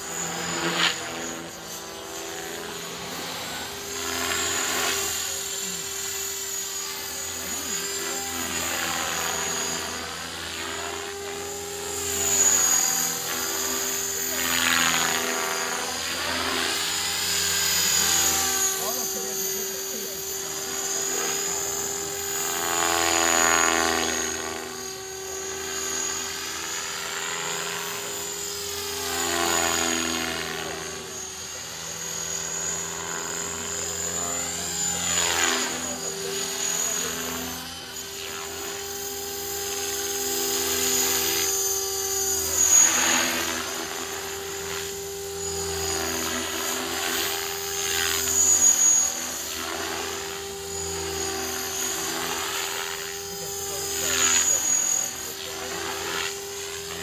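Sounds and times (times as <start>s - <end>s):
rc helicopter motor whine: 0.0s - 57.0s.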